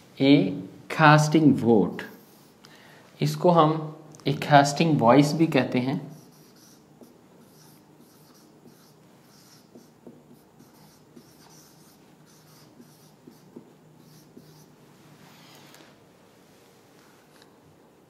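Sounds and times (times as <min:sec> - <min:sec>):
marker squeaking on whiteboard: 0:02.0 - 0:02.5, 0:06.1 - 0:14.8.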